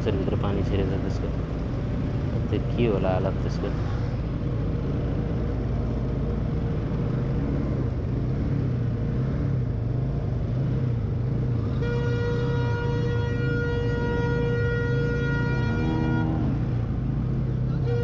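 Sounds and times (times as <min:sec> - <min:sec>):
motorcycle engines at low revs: 0:00.0 - 0:18.0
long steady horn note: 0:11.6 - 0:16.9, 0:17.8 - 0:18.0.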